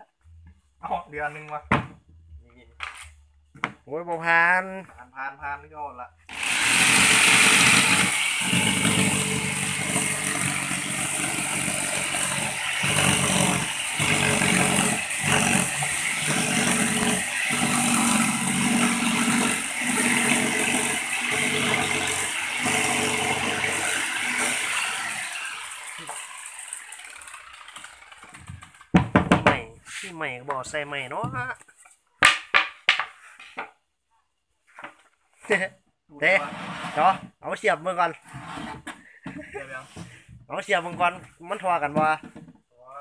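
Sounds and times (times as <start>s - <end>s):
jigsaw cutting board: 6.3s - 29.5s.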